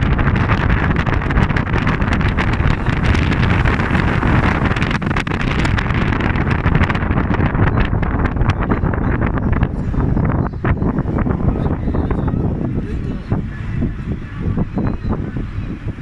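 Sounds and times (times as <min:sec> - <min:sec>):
vehicle driving on gravel road: 0:00.0 - 0:07.3
wind buffeting microphone: 0:00.0 - 0:16.0.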